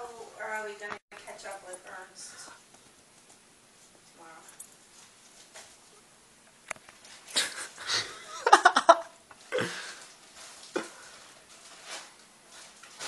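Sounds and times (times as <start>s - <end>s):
person laughing: 7.3s - 10.0s.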